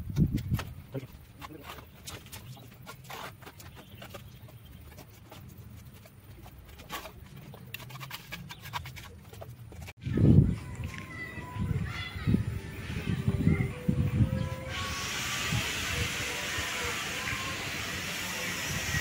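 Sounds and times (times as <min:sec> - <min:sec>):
trowel scraping mortar: 0:05.0 - 0:10.0.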